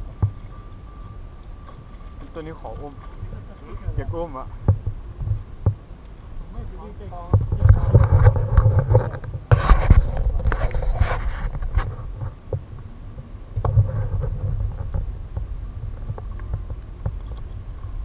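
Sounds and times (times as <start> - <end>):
low rumbling thumps: 0.0 - 18.0
small knocks and clicks: 13.6 - 18.0.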